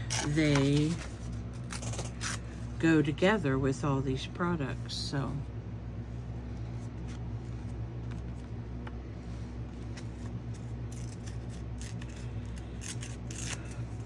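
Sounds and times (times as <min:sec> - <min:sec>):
paper rustling: 0:00.0 - 0:02.4
low hum: 0:00.0 - 0:14.0.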